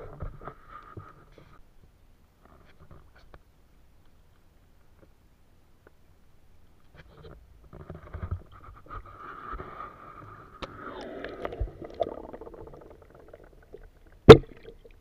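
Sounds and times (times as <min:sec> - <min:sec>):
muffled underwater sloshing: 0:09.2 - 0:15.0.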